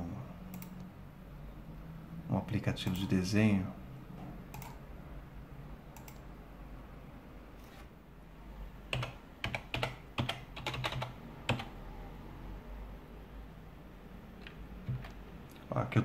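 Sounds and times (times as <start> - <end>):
typing on computer keyboard: 0.5 - 0.8, 4.5 - 4.8, 6.0 - 6.2, 8.9 - 11.7.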